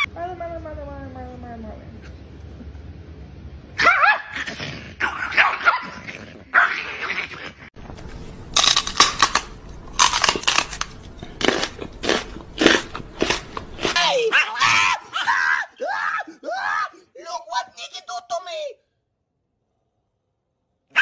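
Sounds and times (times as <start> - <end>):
small dog sharp barks: 3.8 - 6.0
small dog snarling and growling: 3.8 - 7.8.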